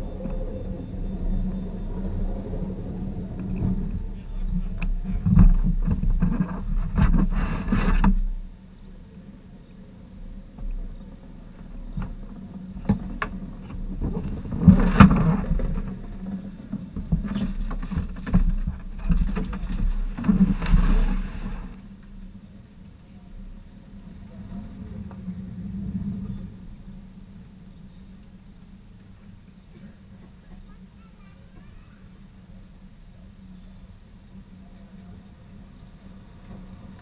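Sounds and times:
vehicles passing by: 0.0s - 6.2s, 21.2s - 37.0s
steady low hum: 0.0s - 37.0s.

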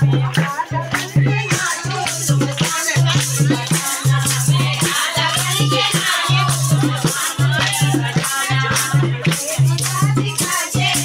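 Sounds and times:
drum beating: 0.0s - 11.0s
hand claps: 0.0s - 11.0s
women singing in a group: 0.0s - 11.0s.

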